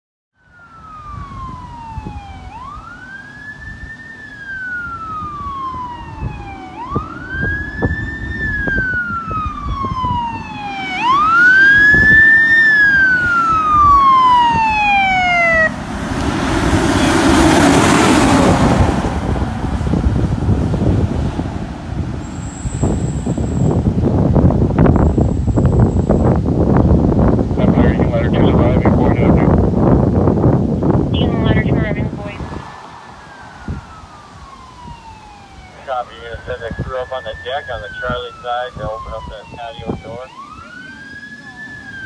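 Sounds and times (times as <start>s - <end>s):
fire truck siren wailing: 0.4s - 42.0s
truck rushing past: 0.6s - 27.6s, 31.9s - 35.8s.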